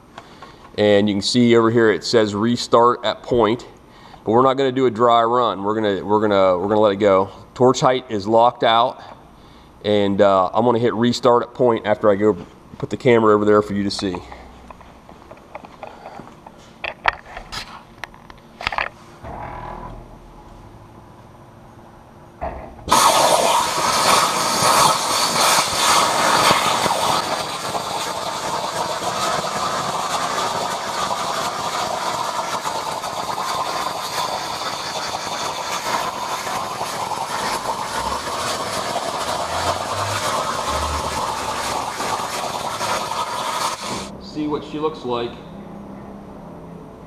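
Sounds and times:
plasma torch hissing: 22.5 - 44.1.

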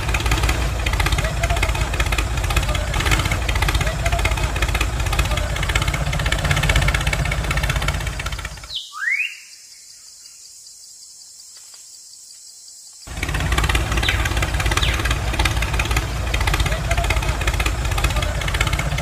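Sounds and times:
tractor engine idling: 0.0 - 8.8, 13.1 - 19.0.

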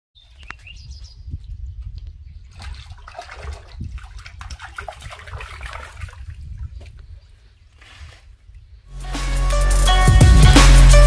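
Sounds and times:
wind rumble on microphone: 0.2 - 8.9
fish splashing at water surface: 2.6 - 6.3.

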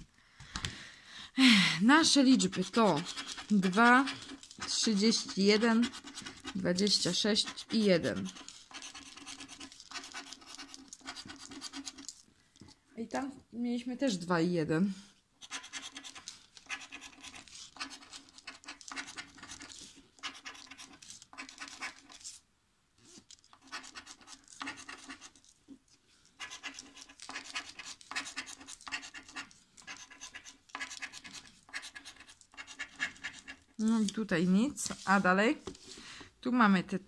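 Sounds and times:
plastic scraper rubbing scratch card: 2.0 - 12.2, 15.4 - 22.4, 23.0 - 25.5, 26.4 - 33.7.

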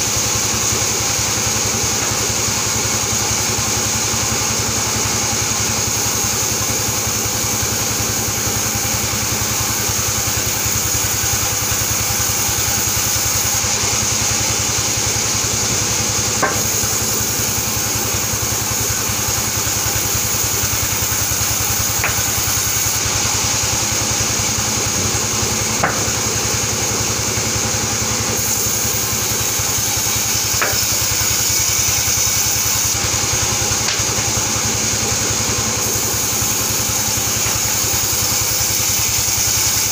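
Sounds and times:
band saw ripping boards: 8.8 - 26.8, 28.3 - 39.9.

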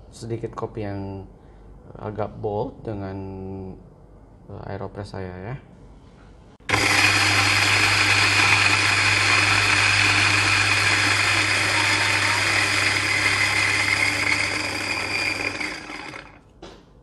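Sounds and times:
electric coffee grinder running: 6.6 - 16.4.

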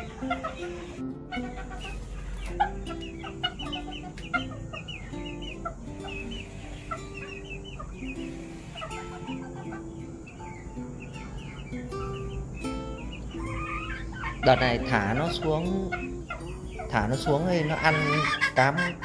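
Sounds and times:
background music of held notes: 0.0 - 19.0
chickens clucking: 0.0 - 19.0.

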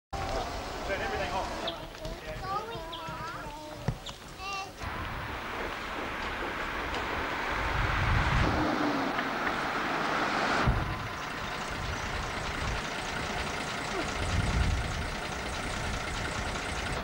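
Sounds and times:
fire trucks driving past: 4.8 - 17.0.

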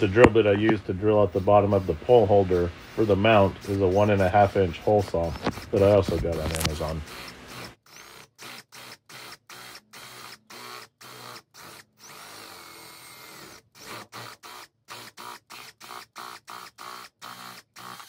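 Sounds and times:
power drill boring into plastic: 5.2 - 18.0.

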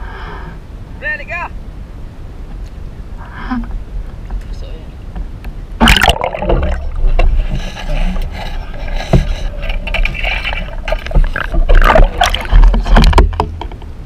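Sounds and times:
underwater rumble: 2.8 - 14.0
underwater clicks and knocks: 5.2 - 14.0
splash into water: 5.8 - 6.9.

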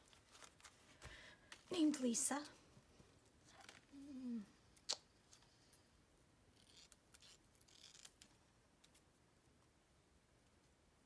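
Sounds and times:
paper rustling: 0.0 - 2.0.

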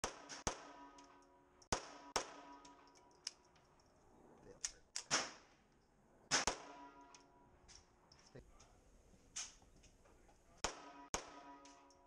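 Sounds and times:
pistol shots: 0.0 - 2.9, 5.0 - 5.5, 6.3 - 7.1, 10.6 - 11.9.

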